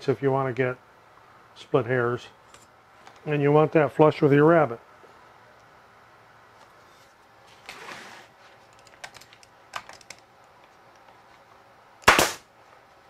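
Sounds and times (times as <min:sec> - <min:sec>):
pneumatic stapler firing: 0:12.0 - 0:12.5.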